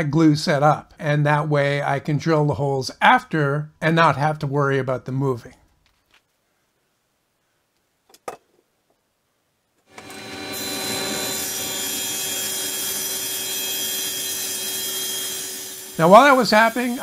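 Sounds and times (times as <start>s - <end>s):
table saw whining: 9.9s - 17.0s.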